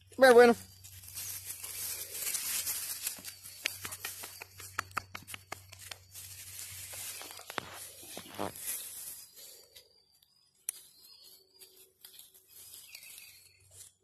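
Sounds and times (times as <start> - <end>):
sharp clicks: 3.6 - 6.0.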